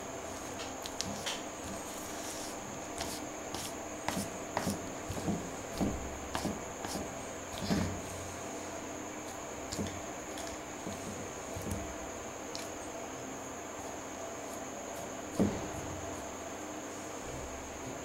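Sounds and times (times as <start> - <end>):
steady high-pitched whine: 0.0 - 18.0
paintbrush dabbing wet paint: 1.7 - 7.9.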